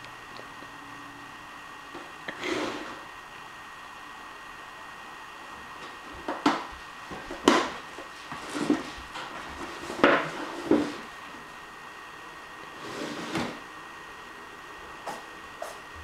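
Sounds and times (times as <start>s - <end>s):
cardboard box scraping on wooden floor: 2.4s - 3.0s, 8.2s - 11.1s, 12.7s - 13.6s.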